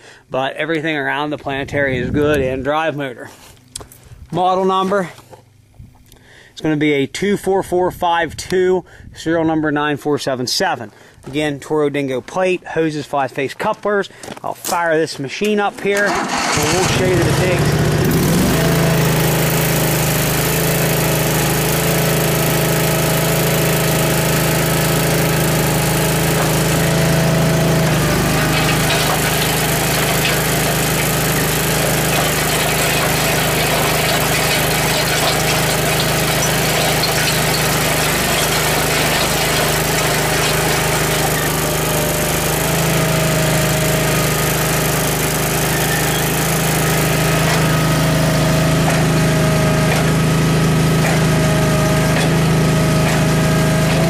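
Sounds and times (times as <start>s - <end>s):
auger boring into gravel: 15.5s - 54.0s
skid steer engine running: 15.8s - 54.0s.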